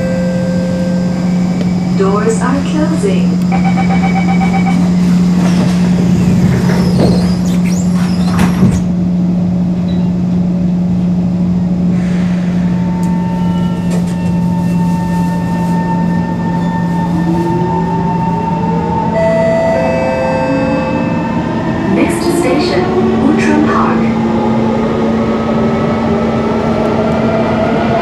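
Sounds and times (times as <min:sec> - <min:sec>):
train doors knocking shut: 0:05.4 - 0:09.0.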